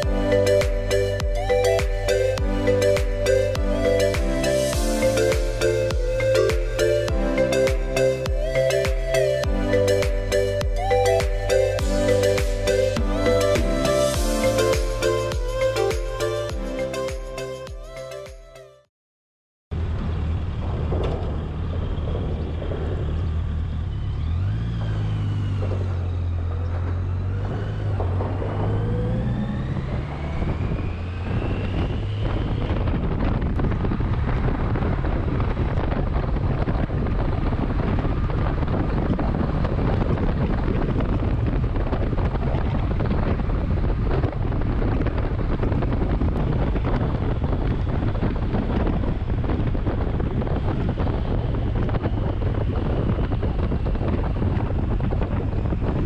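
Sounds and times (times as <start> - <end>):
motorcycle engine accelerating: 19.7 - 56.0
wind rushing on microphone: 19.8 - 56.0.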